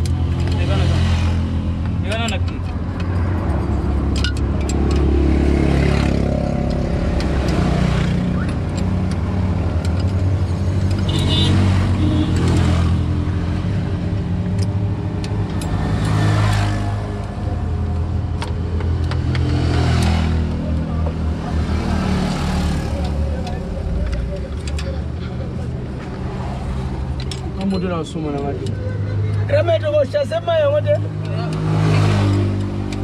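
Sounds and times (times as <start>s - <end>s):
tools clicking on metal: 2.1s - 5.2s, 6.2s - 11.2s, 14.5s - 20.2s.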